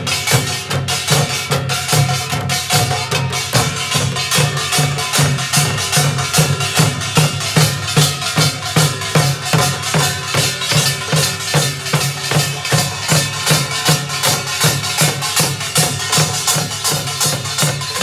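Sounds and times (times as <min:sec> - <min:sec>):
drums beaten in fast rhythm: 0:00.0 - 0:18.0.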